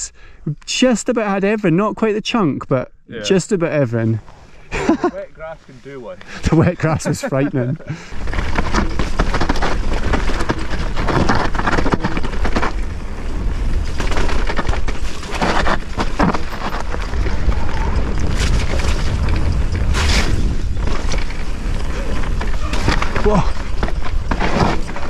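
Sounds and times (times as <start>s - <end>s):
tyres rolling over dirt: 6.2s - 25.0s
bike rattling over bumps: 7.6s - 25.0s
wind rumble on camera: 8.1s - 25.0s.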